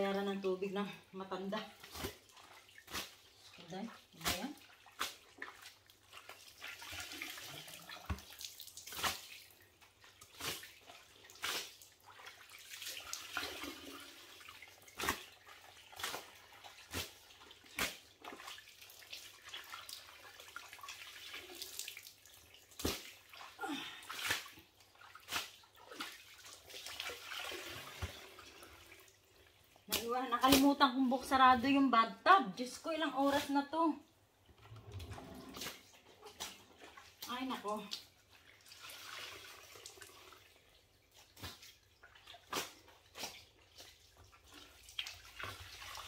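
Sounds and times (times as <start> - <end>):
wet towel splashing and slapping: 1.3 - 31.8, 35.0 - 46.0
water dripping into puddle: 4.2 - 9.6, 17.0 - 23.4, 41.1 - 46.0.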